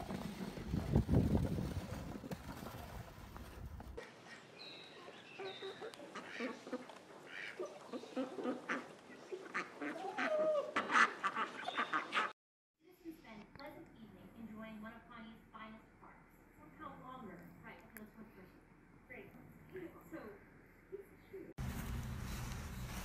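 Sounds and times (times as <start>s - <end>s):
wind buffeting microphone: 0.0s - 4.0s
chickens calling: 4.2s - 12.3s
duck calling: 9.5s - 12.3s.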